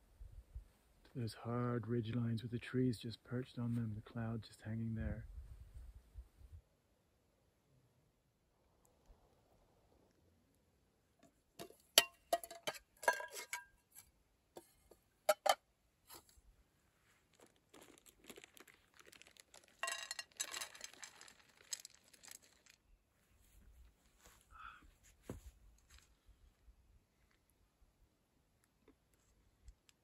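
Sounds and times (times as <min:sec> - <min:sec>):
crinkling and rustling: 0:16.0 - 0:26.4
small objects clicking and clinking: 0:17.3 - 0:22.8.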